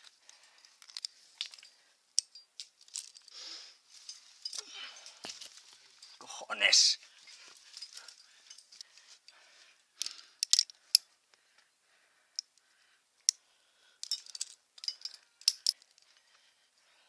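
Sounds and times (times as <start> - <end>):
metal carabiners clicking and jingling: 0.0 - 6.3, 7.2 - 9.4, 10.0 - 11.1, 13.2 - 16.2.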